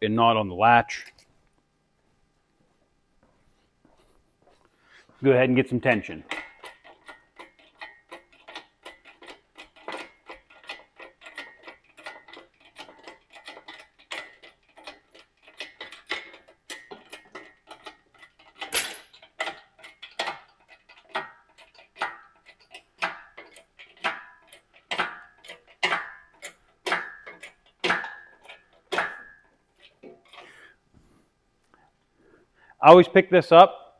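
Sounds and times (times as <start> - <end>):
hydraulic hoist pump clicking: 19.4 - 30.4.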